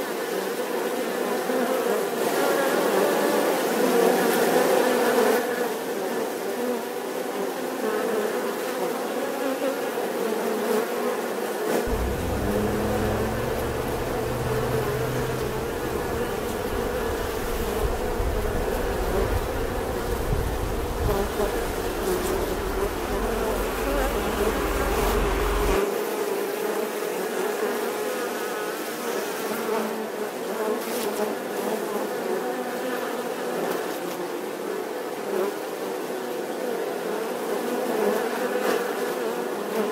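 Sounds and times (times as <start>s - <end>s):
honeybees buzzing: 11.9s - 25.8s
low rumble: 11.9s - 25.8s.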